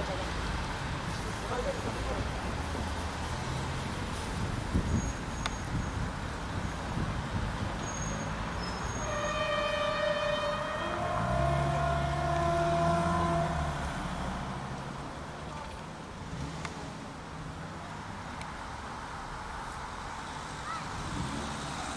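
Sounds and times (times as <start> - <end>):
diesel train engine droning: 8.8 - 15.4
train horn: 8.9 - 14.3.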